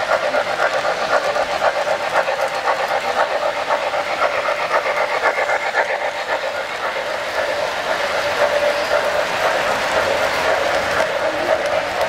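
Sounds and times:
model train wheels clattering: 0.0s - 12.0s
steam locomotive hissing: 0.0s - 12.0s.

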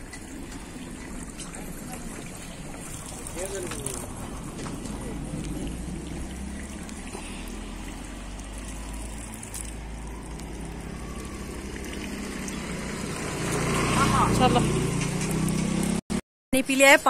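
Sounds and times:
water trickling and splashing: 0.0s - 16.0s.

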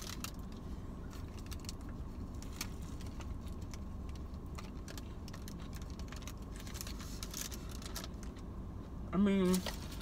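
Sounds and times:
paper wrapper crinkling: 1.2s - 8.3s.

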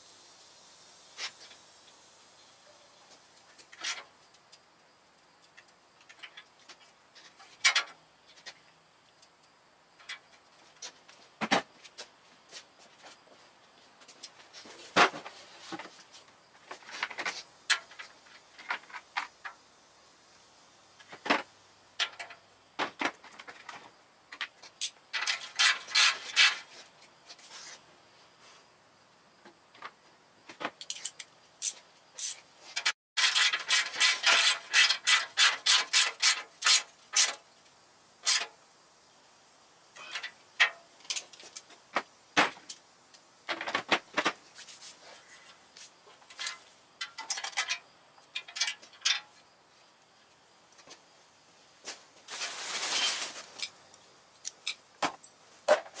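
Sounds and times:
metal tools clinking: 40.0s - 42.8s, 46.3s - 47.8s.

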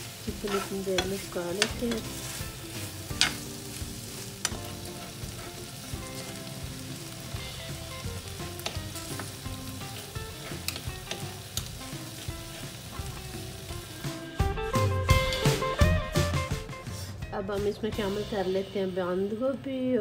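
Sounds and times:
chicken sizzling in frying pan: 0.0s - 16.3s
spoon and forks scraping pan: 0.3s - 3.5s.

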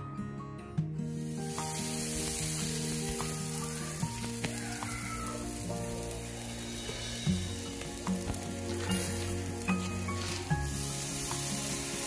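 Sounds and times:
guitar music: 0.0s - 12.0s
chicken sizzling on grill: 1.1s - 12.0s.

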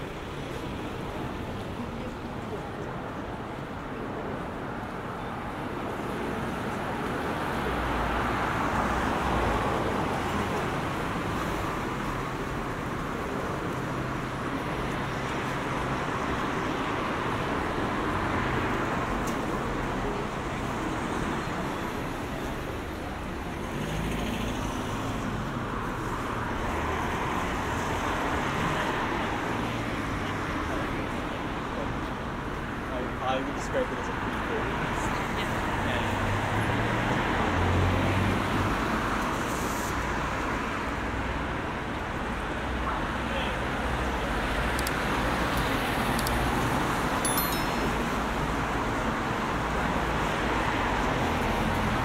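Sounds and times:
cars passing on wet road: 34.6s - 47.2s, 47.9s - 52.0s.

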